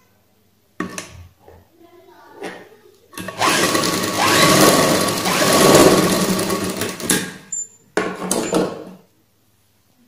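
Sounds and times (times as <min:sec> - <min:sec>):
sewing machine stitching: 0:03.2 - 0:07.4.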